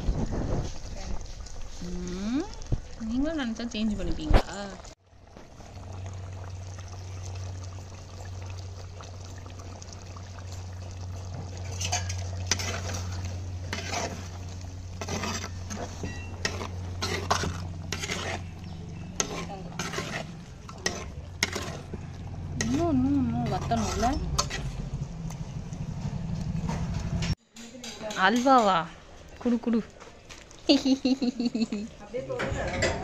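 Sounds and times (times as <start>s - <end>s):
curry simmering: 0.0s - 33.0s
spatula scraping clay pot: 11.6s - 25.0s.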